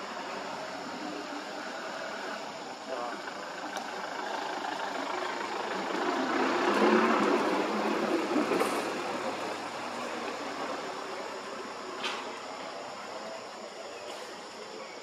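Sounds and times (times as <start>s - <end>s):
passing motor vehicle engine: 0.0s - 12.5s.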